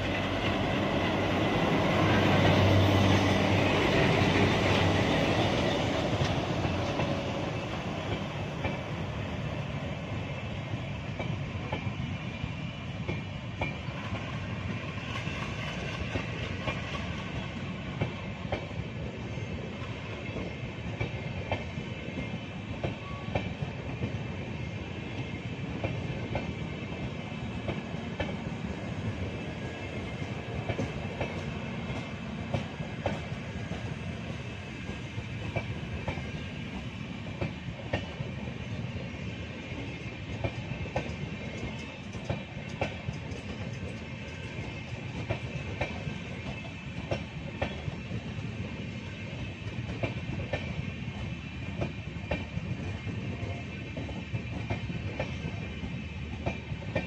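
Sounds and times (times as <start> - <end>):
train wheels rumbling on rail: 0.0 - 57.0
wheels clicking over rail joints: 39.8 - 47.9.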